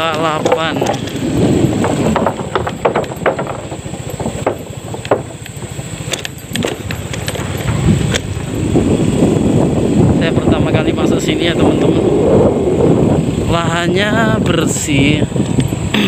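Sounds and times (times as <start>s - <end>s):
wheels knocking on wooden plank bridge: 0.0s - 9.6s
small vehicle engine running: 0.0s - 16.0s
vehicle bumping on dirt road: 0.0s - 16.0s.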